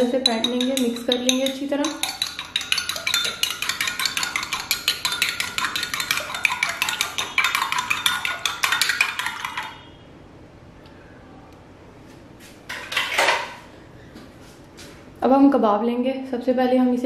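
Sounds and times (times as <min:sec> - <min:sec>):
spoon clinking in ceramic bowl: 0:00.0 - 0:09.9.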